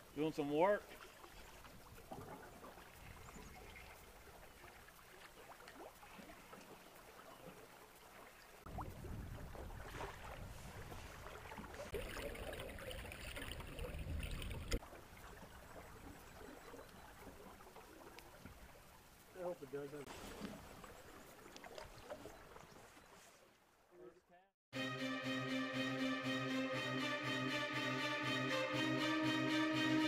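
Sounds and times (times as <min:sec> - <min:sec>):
river water moving: 0:00.0 - 0:23.8
water sloshing: 0:00.8 - 0:19.3, 0:20.0 - 0:23.5.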